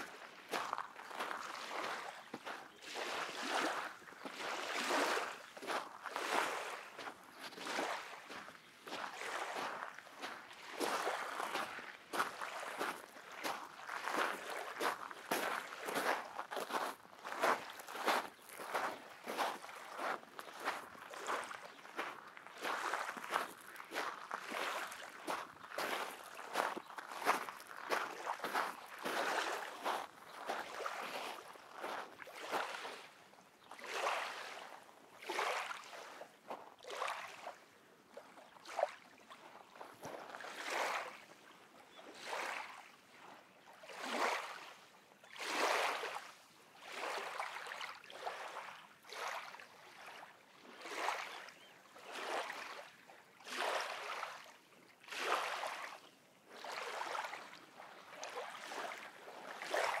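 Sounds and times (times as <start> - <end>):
waves lapping onto sand shore: 0.0 - 36.2.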